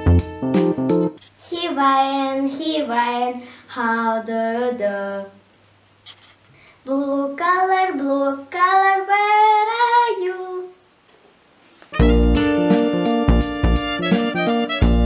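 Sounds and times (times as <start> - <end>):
girl singing unaccompanied: 1.4 - 5.5, 6.8 - 10.9.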